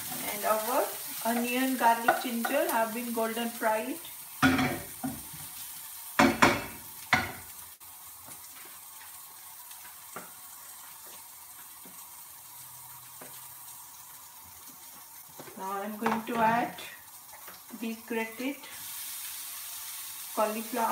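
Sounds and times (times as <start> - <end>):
food sizzling in oil: 0.0 - 20.9
spatula knocking on pan: 1.3 - 2.6, 6.2 - 7.4.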